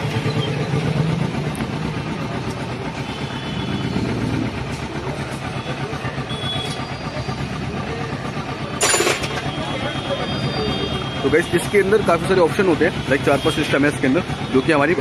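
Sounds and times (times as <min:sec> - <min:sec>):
motorcycle engine idling: 0:00.0 - 0:15.0.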